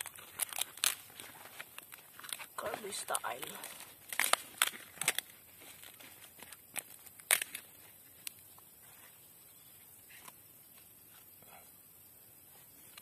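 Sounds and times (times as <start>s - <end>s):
leaves crackling and rustling: 0.0s - 9.2s.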